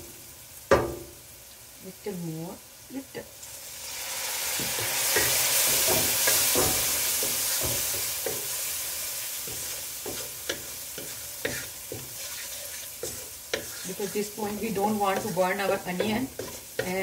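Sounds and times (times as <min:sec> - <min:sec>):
onions sizzling in a hot pan: 0:00.0 - 0:17.0
wooden spoon scraping a pan: 0:04.6 - 0:08.7, 0:09.4 - 0:17.0.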